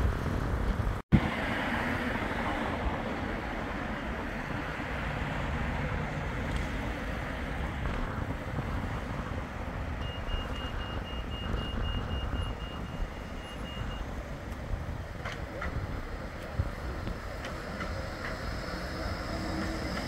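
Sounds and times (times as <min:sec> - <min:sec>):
road traffic rumble: 0:00.0 - 0:20.0
tram approaching: 0:00.0 - 0:20.0
wind: 0:00.0 - 0:20.0
rapid high electronic beeps: 0:10.0 - 0:14.0.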